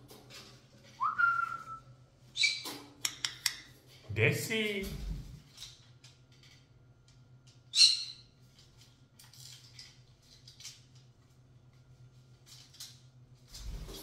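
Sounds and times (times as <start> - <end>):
parrot chirps and clicks: 2.4 - 3.7.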